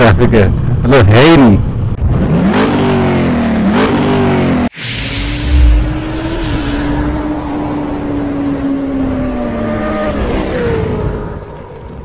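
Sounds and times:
engine at high revs: 2.0 - 11.5.

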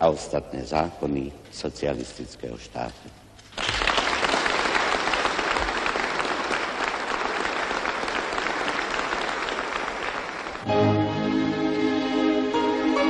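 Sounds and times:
large audience applause: 3.5 - 10.7.

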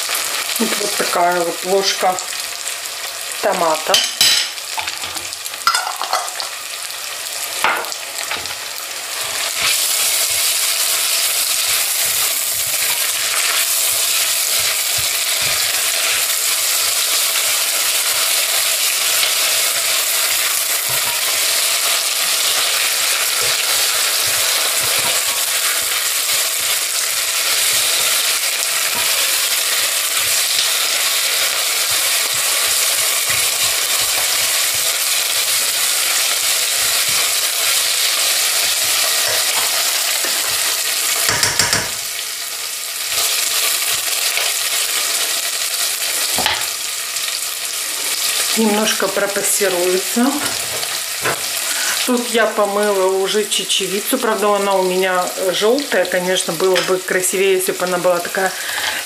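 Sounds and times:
vegetables sizzling in a pot: 0.0 - 59.0
spatula scraping: 9.2 - 17.1, 18.8 - 40.7.

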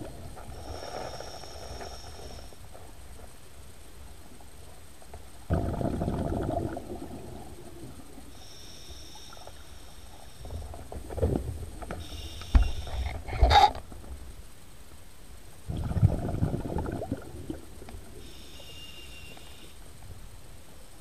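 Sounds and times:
regulator hiss on inhale: 0.0 - 3.3, 6.8 - 11.0, 11.8 - 13.8, 18.0 - 20.1
exhaled regulator bubbles: 5.5 - 8.2, 15.7 - 18.4.

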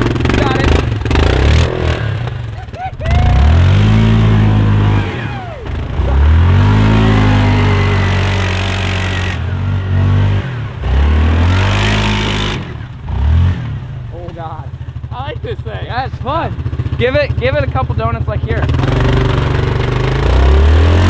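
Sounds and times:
atv engine revving: 0.0 - 21.0.

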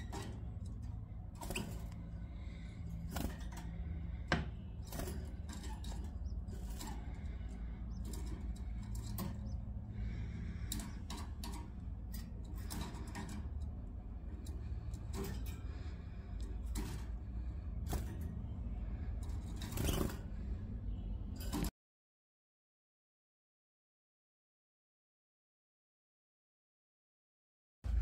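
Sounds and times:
steady low hum: 0.0 - 21.7.

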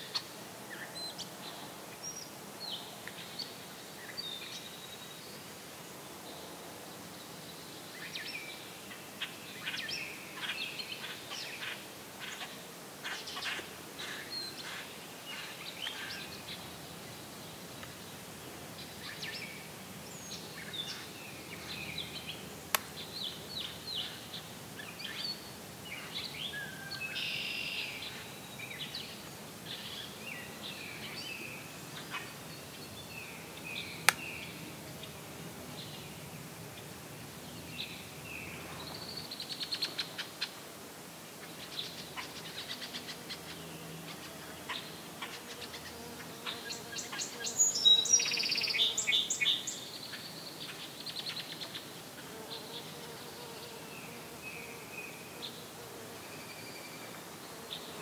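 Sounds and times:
songbirds singing and calling: 7.1 - 40.6, 41.4 - 55.6.

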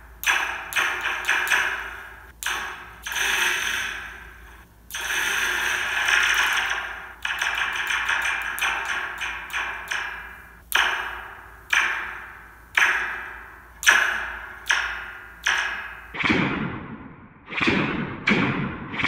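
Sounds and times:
pencil striking metal spring: 4.9 - 16.1.

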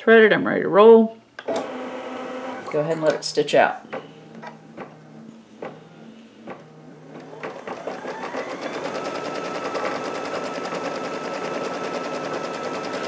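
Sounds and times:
embroidery machine stitching: 1.5 - 2.8, 7.0 - 13.0.

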